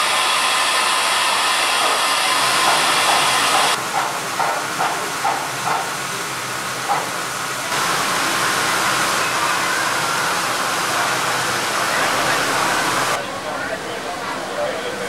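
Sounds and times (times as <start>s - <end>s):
steam hissing from locomotive: 0.0s - 13.2s.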